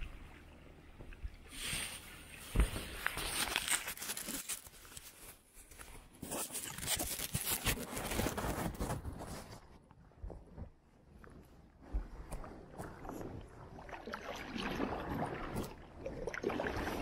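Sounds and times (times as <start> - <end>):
paddle splashing water: 12.0 - 17.0.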